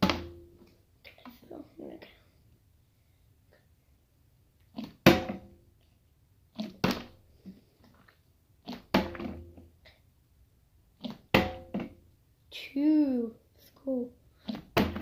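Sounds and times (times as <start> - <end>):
plastic bottle landing on glass: 5.0 - 5.5, 11.3 - 12.0.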